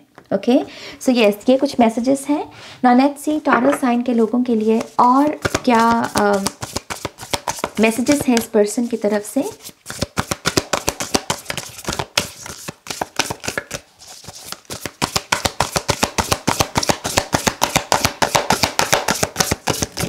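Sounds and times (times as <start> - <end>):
cards being shuffled: 4.6 - 20.0.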